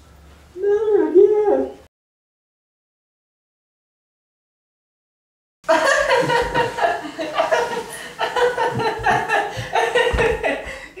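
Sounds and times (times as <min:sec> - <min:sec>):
man chuckling: 0:05.7 - 0:11.0.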